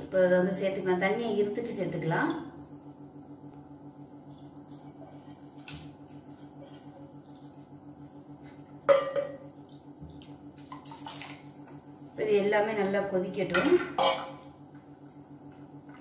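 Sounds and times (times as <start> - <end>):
metal bowl knocking on pot rim: 8.9 - 9.5.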